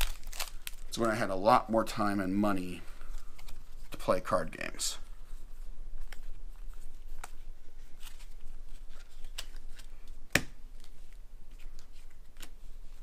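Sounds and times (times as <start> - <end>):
trading cards being handled: 3.0 - 13.0.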